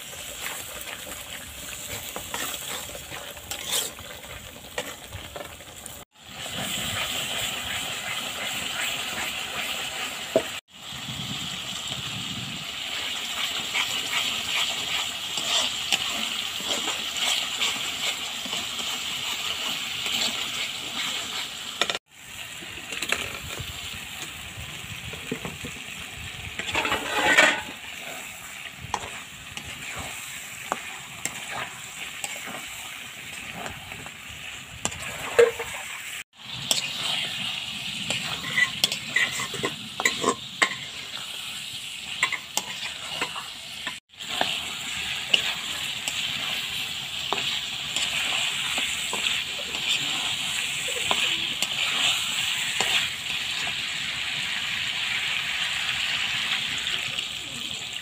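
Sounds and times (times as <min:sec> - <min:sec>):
metal spatula scraping a pan: 0:00.0 - 0:05.8, 0:06.4 - 0:10.2, 0:12.9 - 0:22.0, 0:26.6 - 0:34.1, 0:34.8 - 0:53.8
chicken sizzling in oil: 0:00.0 - 0:58.0.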